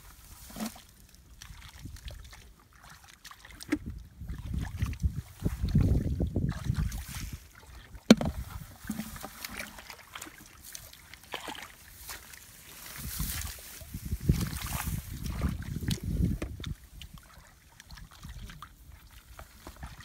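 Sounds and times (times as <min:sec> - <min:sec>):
hands splashing in muddy water: 0:00.4 - 0:20.0
sharp knock: 0:08.1 - 0:08.3.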